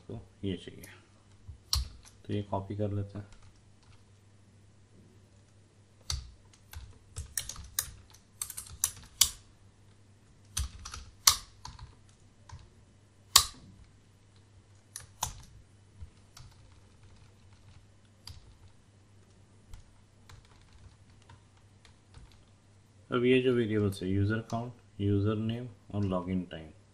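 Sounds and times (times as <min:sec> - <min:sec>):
faint low hum: 0:00.0 - 0:26.9
computer keyboard typing: 0:03.2 - 0:04.0, 0:06.0 - 0:09.4, 0:10.5 - 0:12.7, 0:15.0 - 0:18.8, 0:19.7 - 0:22.5.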